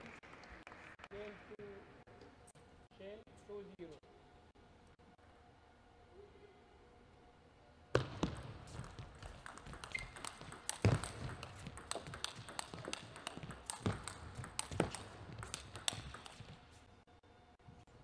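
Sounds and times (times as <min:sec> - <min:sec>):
table tennis ball hits and bounces: 0:08.0 - 0:16.8.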